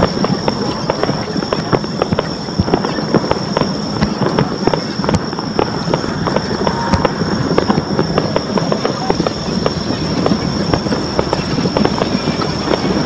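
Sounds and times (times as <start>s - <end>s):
fireworks crackling and banging: 0.0s - 13.0s
steady high-pitched tone: 0.0s - 13.0s.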